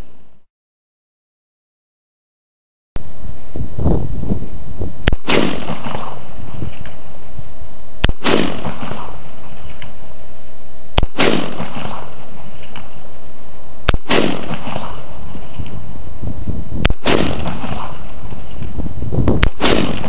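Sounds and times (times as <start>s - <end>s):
rifle shots with echo: 5.1s - 6.3s, 8.0s - 9.4s, 11.0s - 12.4s, 13.9s - 15.4s, 16.9s - 18.4s, 19.4s - 20.0s.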